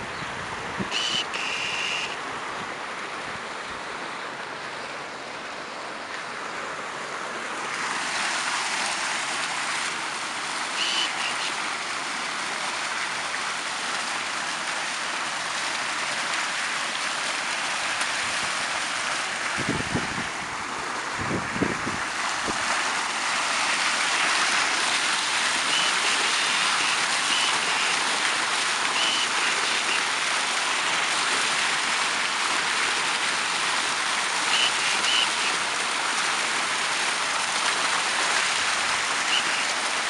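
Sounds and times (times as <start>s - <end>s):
wind rumble on microphone: 0.0s - 1.0s, 19.5s - 22.8s
fountain water splashing: 0.0s - 40.0s.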